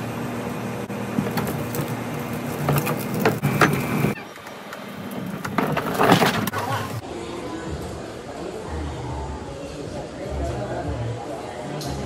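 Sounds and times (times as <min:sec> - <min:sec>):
plastic bin knocking and scraping: 0:05.2 - 0:06.6.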